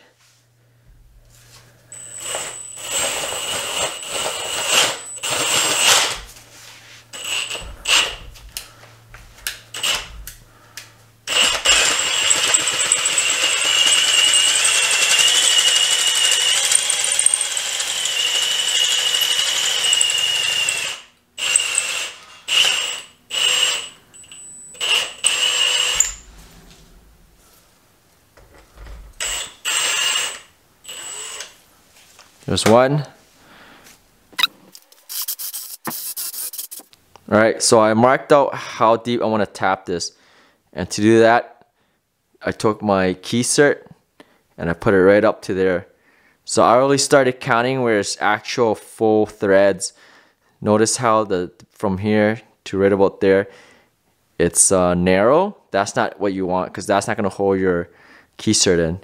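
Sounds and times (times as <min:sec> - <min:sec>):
power drill whining: 0:01.9 - 0:06.4, 0:07.1 - 0:08.8, 0:09.4 - 0:10.6, 0:11.2 - 0:26.3, 0:28.7 - 0:31.6, 0:35.1 - 0:36.9.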